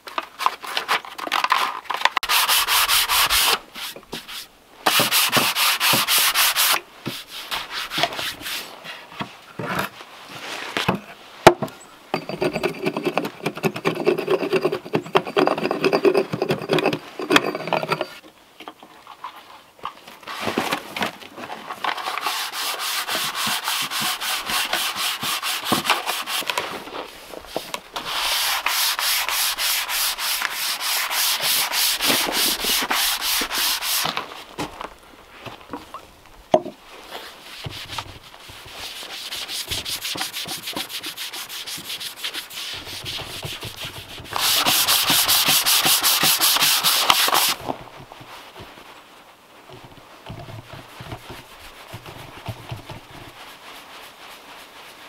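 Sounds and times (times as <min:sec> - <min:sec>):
sandpaper sanding wood: 0:02.2 - 0:08.7, 0:22.0 - 0:26.6, 0:27.5 - 0:34.2, 0:37.2 - 0:47.6.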